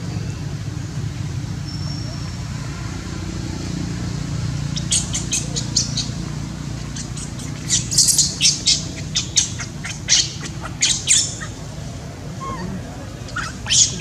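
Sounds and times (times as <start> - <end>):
baby monkey squealing: 4.6 - 11.7, 12.4 - 14.0.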